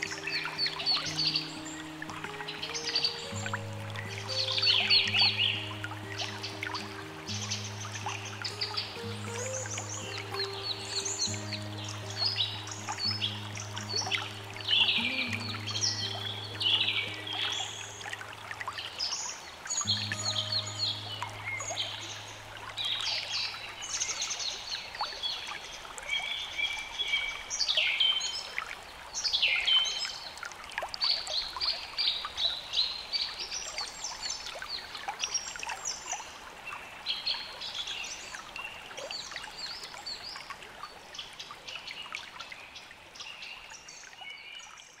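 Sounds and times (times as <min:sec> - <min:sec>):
birds singing and chirping: 0:00.0 - 0:28.5
running water trickling: 0:00.0 - 0:45.0.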